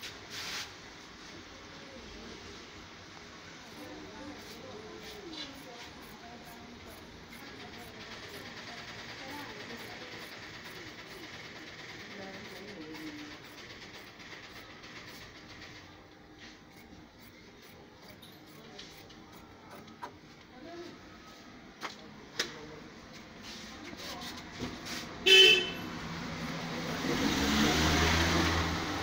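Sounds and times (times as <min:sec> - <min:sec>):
vehicle horn toot: 0:25.2 - 0:25.9
vehicle rumbling past: 0:25.8 - 0:29.0.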